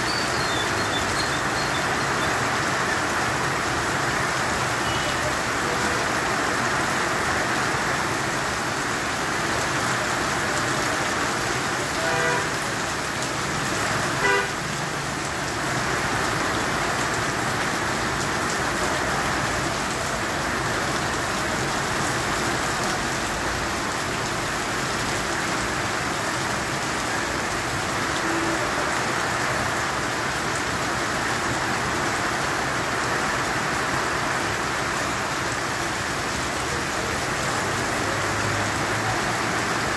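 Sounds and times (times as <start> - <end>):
heavy rain falling: 0.0 - 39.9
vehicle horn honks: 12.0 - 12.6, 14.2 - 14.5.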